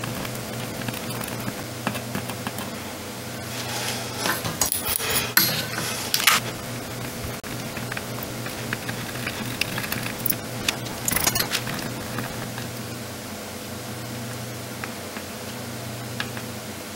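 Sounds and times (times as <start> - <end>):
soldering iron hissing: 3.3 - 12.6.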